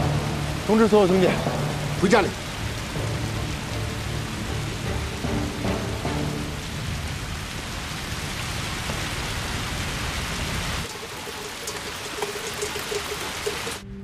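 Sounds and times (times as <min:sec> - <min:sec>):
deep rumble: 0:00.0 - 0:10.9
heavy rain on pavement: 0:00.0 - 0:13.8.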